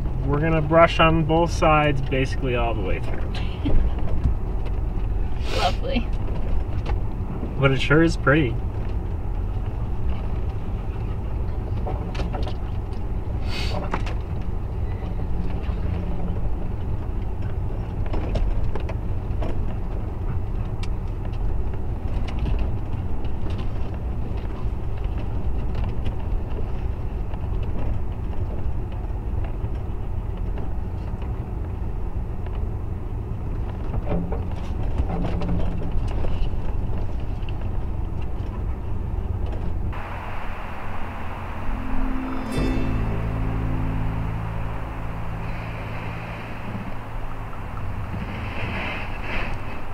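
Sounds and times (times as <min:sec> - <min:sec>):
truck engine and tyre rumble: 0:00.0 - 0:49.9
brush scraping along truck: 0:08.8 - 0:20.6, 0:33.6 - 0:49.9.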